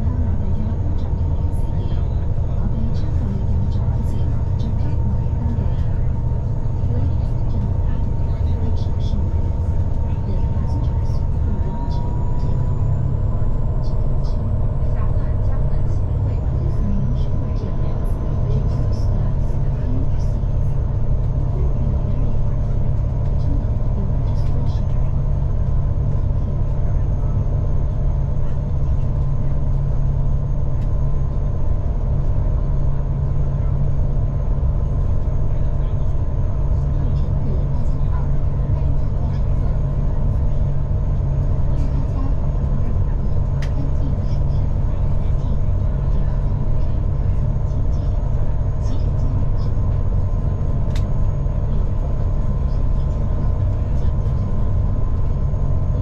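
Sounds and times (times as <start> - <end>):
ferry engines droning: 0.0 - 56.0.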